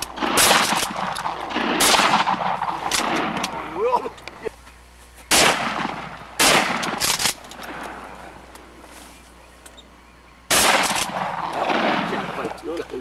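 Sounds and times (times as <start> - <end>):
shotgun shots: 0.0 - 3.6, 5.3 - 8.1, 10.5 - 12.6.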